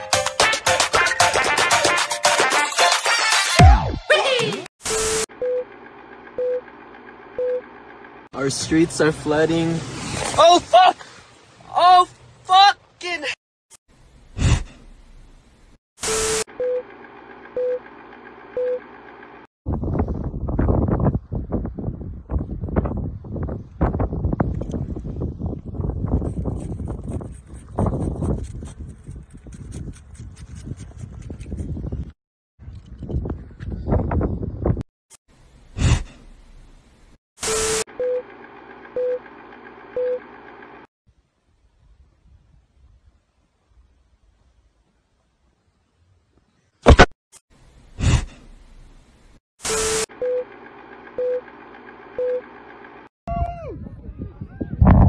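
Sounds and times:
wind buffeting microphone: 19.7s - 34.8s, 53.3s - 55.0s
short electronic beeps: 52.2s - 52.5s.

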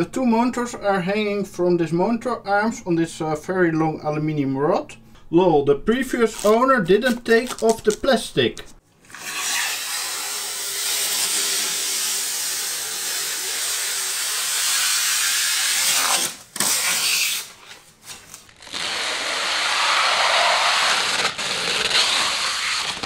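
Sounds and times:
plastic film peeling off: 6.2s - 8.2s, 9.1s - 23.0s.

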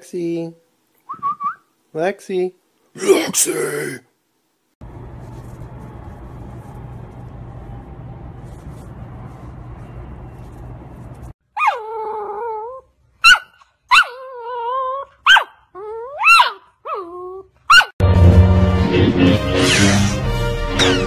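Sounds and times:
puppy barking and whining: 11.5s - 18.0s.

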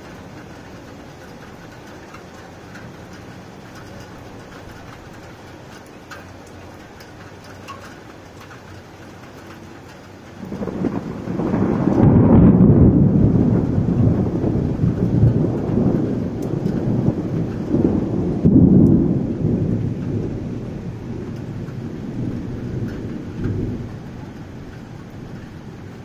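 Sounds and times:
thunder rumbling: 10.1s - 26.0s.

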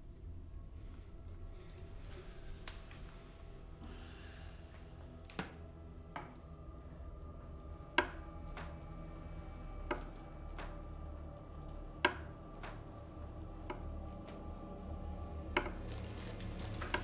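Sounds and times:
low hum: 0.0s - 17.0s
soft breath: 0.7s - 5.3s.

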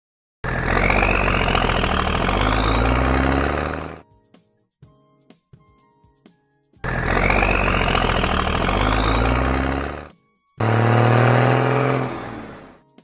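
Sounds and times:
cartoon truck engine rumbling: 0.4s - 4.0s, 6.8s - 13.0s
soft background music: 1.1s - 13.0s.

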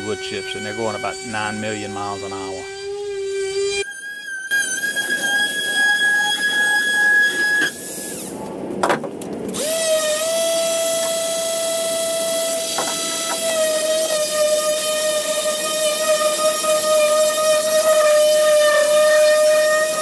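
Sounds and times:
orbital sander running: 0.0s - 3.9s, 9.6s - 20.0s
power tool whining: 0.0s - 8.5s, 9.5s - 20.0s.

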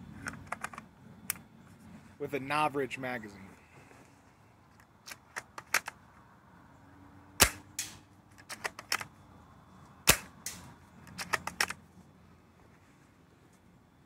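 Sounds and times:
airsoft rifle shot crack: 7.4s - 8.0s, 10.1s - 10.6s
rifle bolt metallic clicks: 7.4s - 9.1s, 10.1s - 11.8s.

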